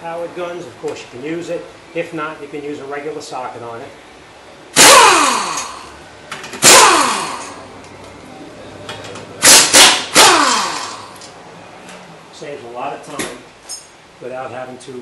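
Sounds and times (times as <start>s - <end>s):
impact wrench bursts: 4.7s - 7.7s, 9.4s - 11.3s.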